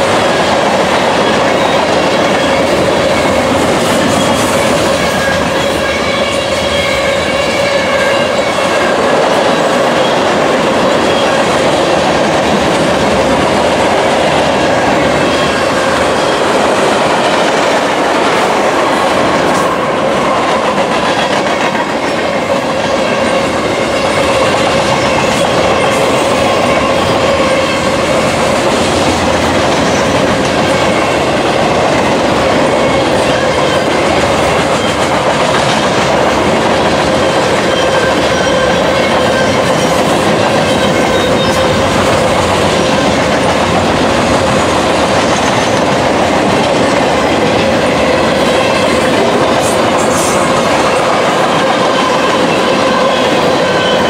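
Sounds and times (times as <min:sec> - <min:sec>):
freight train wheels clacking on rails: 0:00.0 - 0:54.0.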